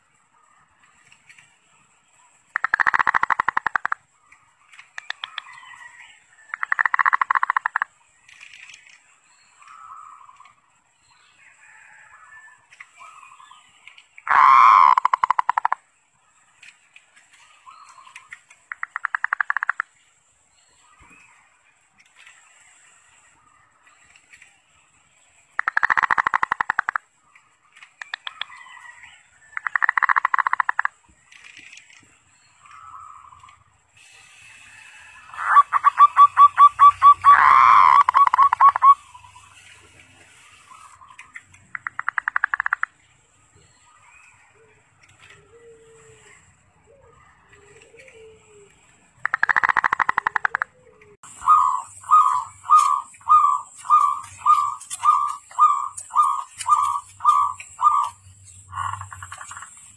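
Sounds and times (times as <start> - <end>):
dove cooing: 35.3 - 39.4, 44.6 - 59.6.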